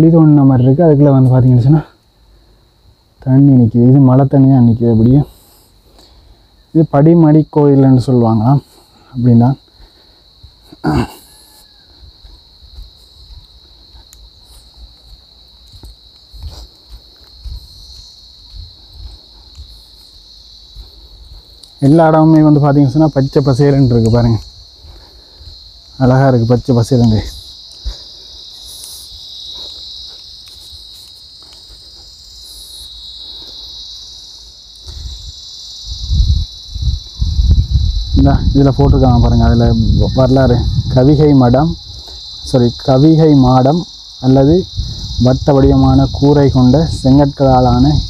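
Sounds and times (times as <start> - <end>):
insects shrilling: 0.0 - 48.0
soft footsteps: 12.0 - 33.0.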